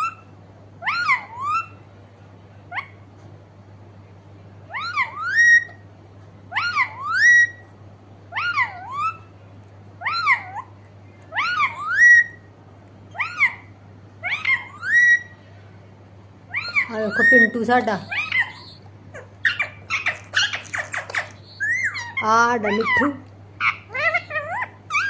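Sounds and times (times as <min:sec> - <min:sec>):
parakeet whistled call: 0:00.0 - 0:01.8, 0:04.7 - 0:05.8, 0:06.5 - 0:07.7, 0:08.3 - 0:09.3, 0:10.0 - 0:10.6, 0:11.3 - 0:12.5, 0:13.2 - 0:15.4, 0:16.5 - 0:25.0.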